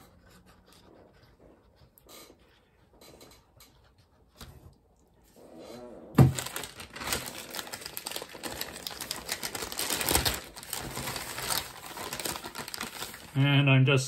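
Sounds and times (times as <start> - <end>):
plastic bag crinkling: 6.2 - 13.8.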